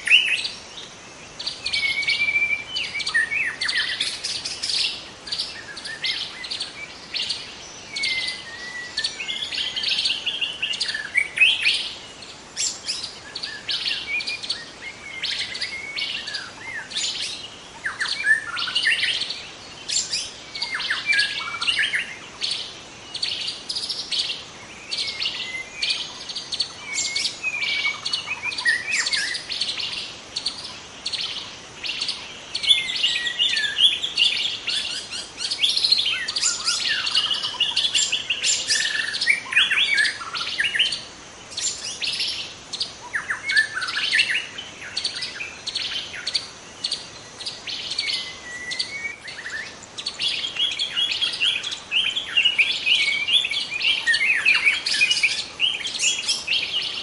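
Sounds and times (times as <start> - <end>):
birds chirping: 0.0 - 57.0.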